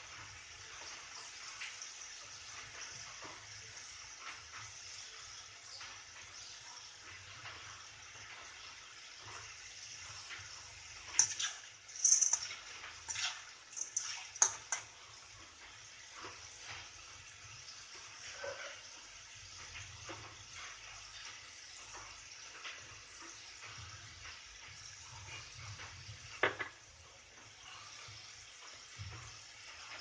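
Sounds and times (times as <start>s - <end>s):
peas sizzling in hot oil: 0.0s - 30.0s
metal spatula scraping pan: 11.2s - 14.8s.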